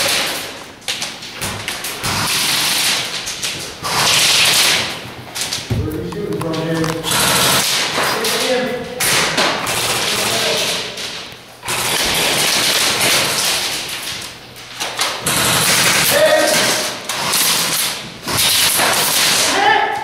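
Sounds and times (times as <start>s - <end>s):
airsoft guns firing bursts: 2.0s - 3.2s, 3.8s - 5.0s, 7.0s - 8.4s, 9.0s - 10.8s, 11.6s - 13.8s, 15.2s - 19.5s.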